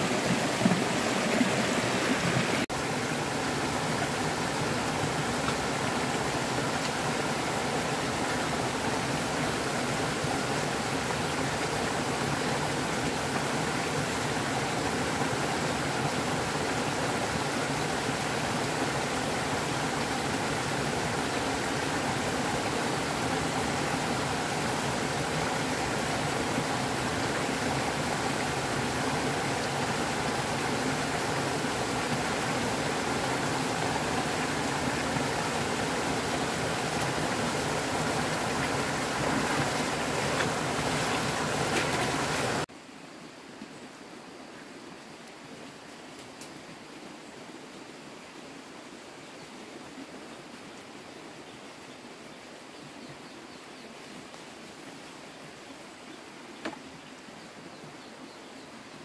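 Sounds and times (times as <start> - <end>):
stream rushing over rocks: 0.0 - 43.6.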